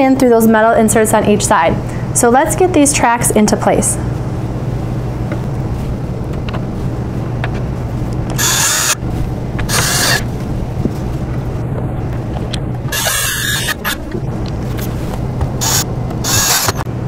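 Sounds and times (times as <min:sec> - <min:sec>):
cordless drill spinning: 0:08.4 - 0:09.0, 0:09.6 - 0:10.3, 0:12.9 - 0:14.1, 0:15.6 - 0:16.8.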